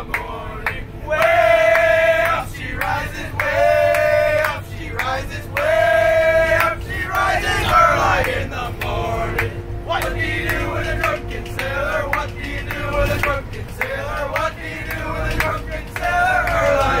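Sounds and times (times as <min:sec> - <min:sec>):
young voices singing in unison: 0:00.0 - 0:17.0.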